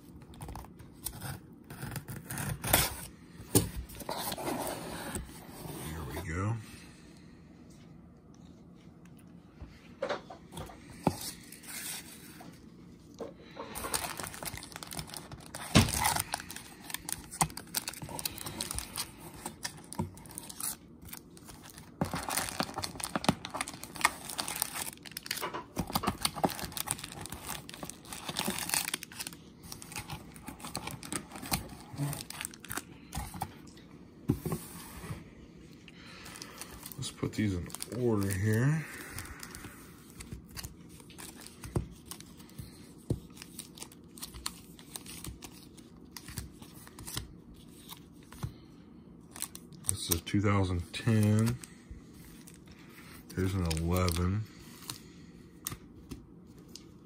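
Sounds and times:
foil wrappers crinkling: 13.4 - 33.2, 36.0 - 48.5, 49.3 - 55.8.

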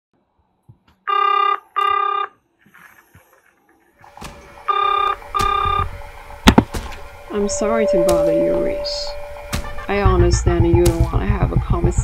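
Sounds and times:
telephone ringing: 1.1 - 3.0, 4.6 - 5.9, 7.3 - 10.3.

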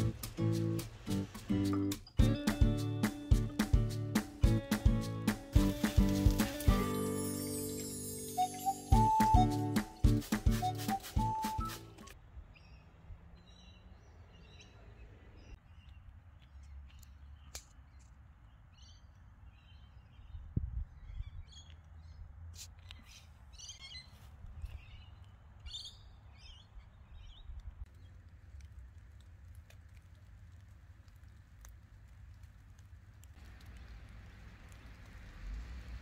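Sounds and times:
small birds chirping: 12.5 - 28.3.

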